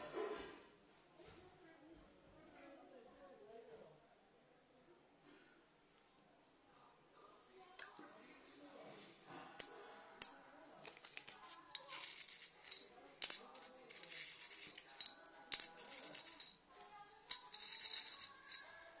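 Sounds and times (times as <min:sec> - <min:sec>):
metal piece scraping on coin: 0:11.7 - 0:16.6, 0:17.3 - 0:18.9.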